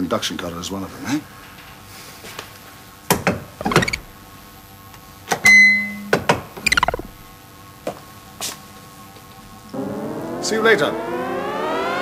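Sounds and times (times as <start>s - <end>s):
electronic clicks: 3.6s - 4.0s, 6.6s - 7.3s
falling electronic chirps: 3.6s - 4.0s, 6.6s - 7.2s
short buzzing tone: 5.8s - 7.3s.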